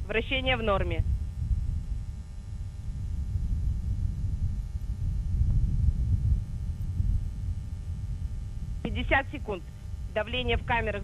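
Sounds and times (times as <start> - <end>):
distant rocket engine rumble: 0.0 - 11.0.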